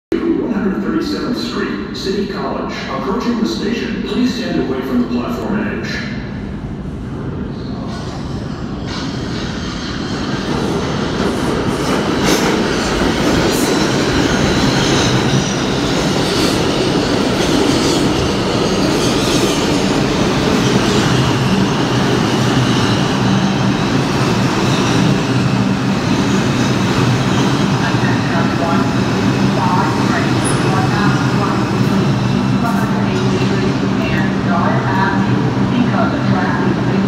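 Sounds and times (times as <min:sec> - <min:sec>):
subway train wheels rumbling: 0:00.1 - 0:37.0.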